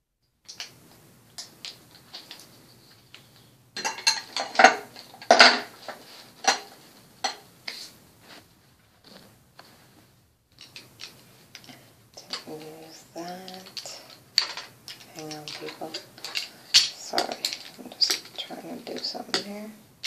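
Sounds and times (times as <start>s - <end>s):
makeup items clicking and clattering: 10.5s - 19.7s.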